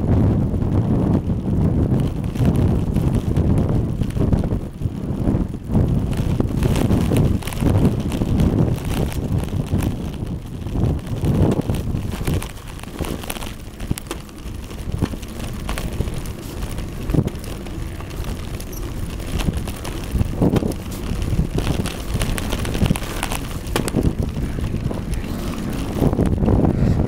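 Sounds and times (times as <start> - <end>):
wind buffeting microphone: 0.0 - 27.0.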